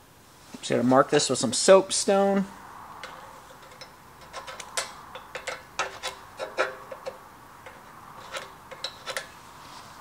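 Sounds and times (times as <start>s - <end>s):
soapstone scratching on metal: 5.4s - 9.4s.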